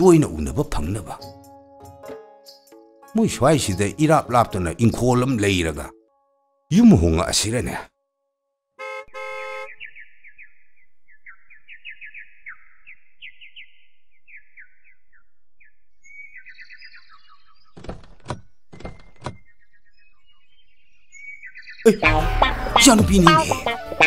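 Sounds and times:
birds chirping: 8.8 - 24.0
higher bird calls: 9.2 - 17.8.

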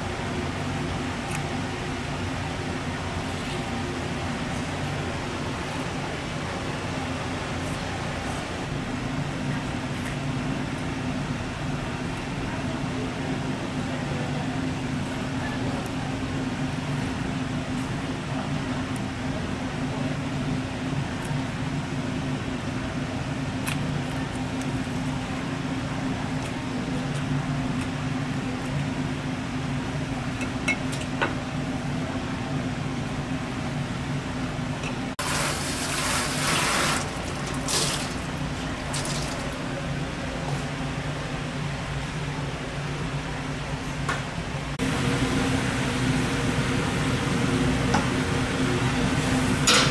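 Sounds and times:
low machine hum: 0.0 - 49.9
rush of running water: 35.2 - 38.2
water splashes: 35.2 - 39.5.

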